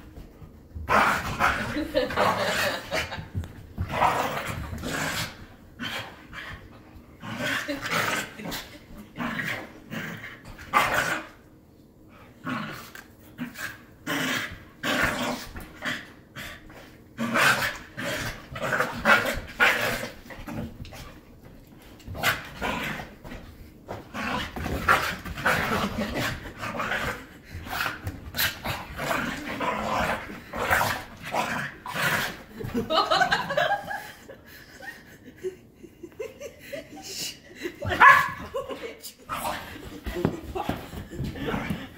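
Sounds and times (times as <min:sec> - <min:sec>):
puppies growling: 0:00.8 - 0:11.4, 0:12.4 - 0:21.2, 0:22.0 - 0:33.8.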